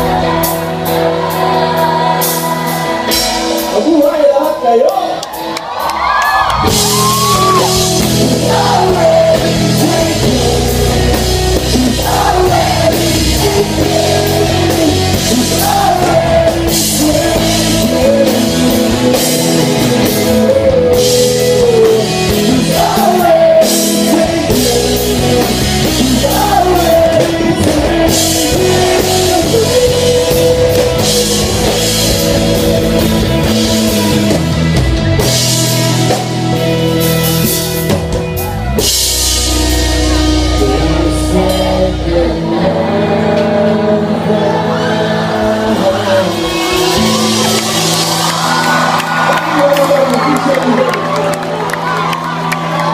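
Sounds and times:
rock band playing: 0.0s - 52.9s
man singing: 7.1s - 34.4s, 39.4s - 48.2s.

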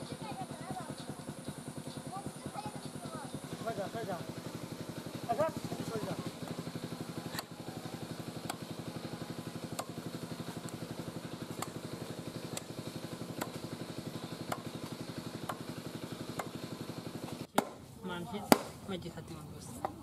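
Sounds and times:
idling engine putter: 0.0s - 17.7s
cleaver chopping on wood: 6.2s - 17.8s, 18.4s - 18.8s.

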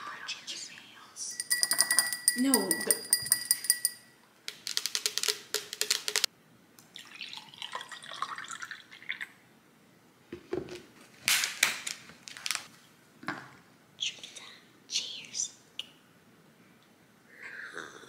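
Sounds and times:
bottle and cup knocking: 1.4s - 4.0s
juice pouring into cup: 6.9s - 9.4s.

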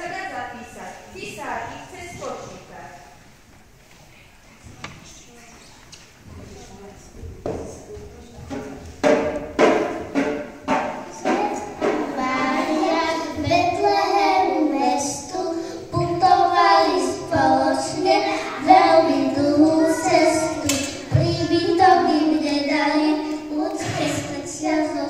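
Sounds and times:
child singing into microphone: 10.7s - 25.0s.

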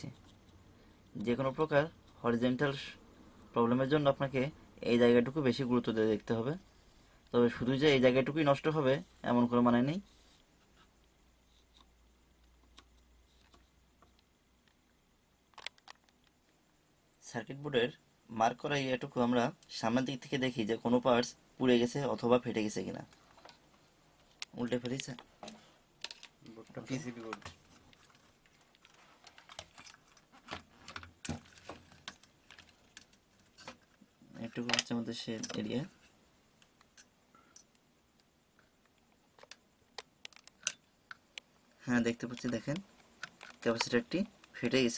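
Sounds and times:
marker pen ticking on circuit board: 11.5s - 14.2s
circuit board and cables tapping: 11.8s - 16.6s, 24.2s - 35.9s, 36.6s - 41.5s, 42.1s - 44.6s.

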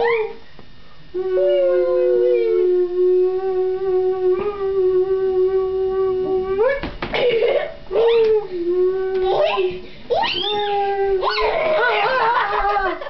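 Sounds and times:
voice holding wailing note: 1.1s - 6.8s, 7.9s - 9.3s.

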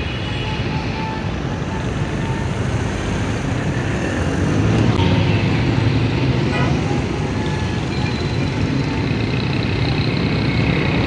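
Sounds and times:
street traffic rumble: 0.0s - 11.0s.

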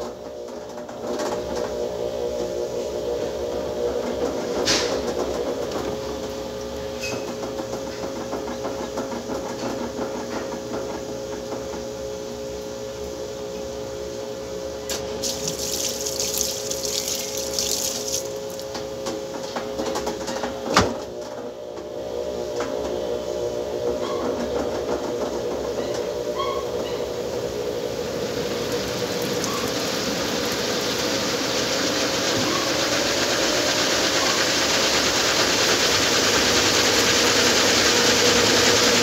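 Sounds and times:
washing machine motor hum: 0.0s - 13.5s, 14.2s - 39.0s
water sloshing: 15.0s - 18.7s.

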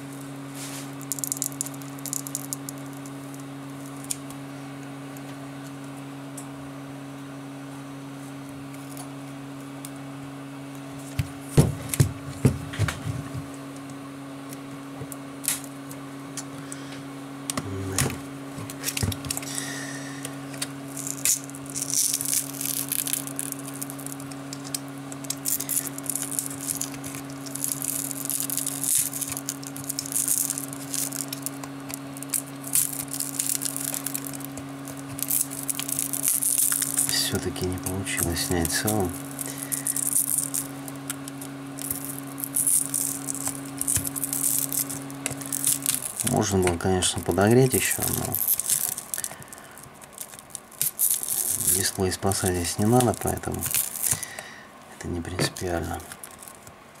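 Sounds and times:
glass crackling: 0.0s - 4.3s, 18.7s - 54.6s, 55.4s - 56.7s
steady low hum: 0.0s - 57.0s.

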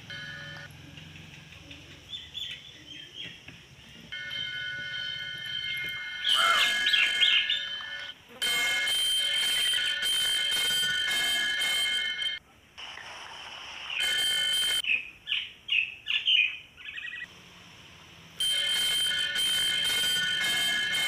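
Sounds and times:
small birds chirping: 0.6s - 4.6s, 5.2s - 7.8s, 14.8s - 17.3s.

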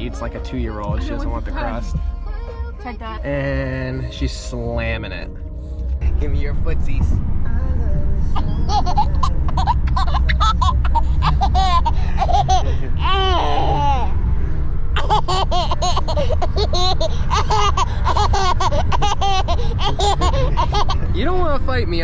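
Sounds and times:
steady low rumble: 0.0s - 22.0s
baby girl laughing: 8.4s - 14.2s, 15.0s - 21.1s.

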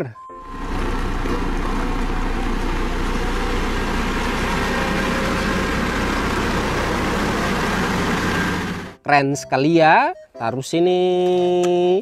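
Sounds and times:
road roller diesel engine running: 0.4s - 9.0s.

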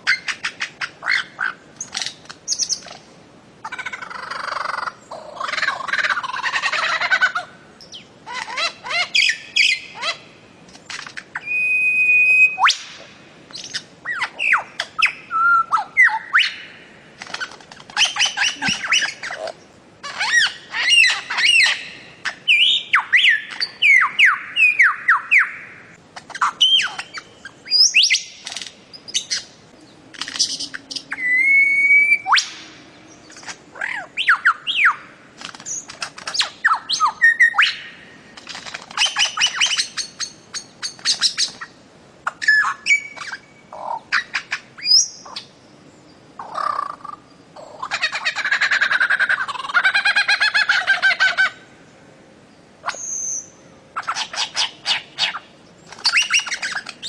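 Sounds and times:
bird squawking and whistling: 11.3s - 12.9s, 18.0s - 25.6s, 30.4s - 32.6s, 56.0s - 57.0s.

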